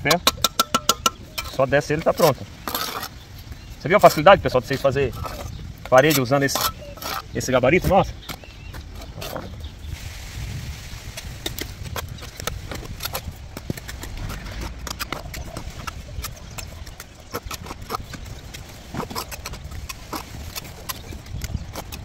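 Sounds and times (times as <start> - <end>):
bricks tapped with trowel: 0.1 - 1.6
low rumble: 9.9 - 17.0.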